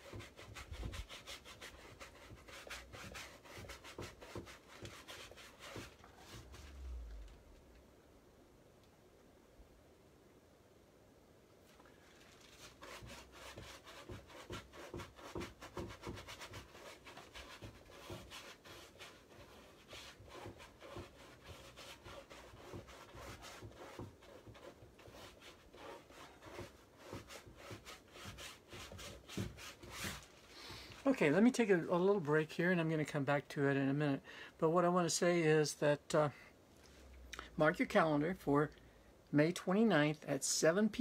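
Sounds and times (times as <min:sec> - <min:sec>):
paintbrush scrubbing on canvas: 0:00.0 - 0:07.2, 0:12.2 - 0:31.0.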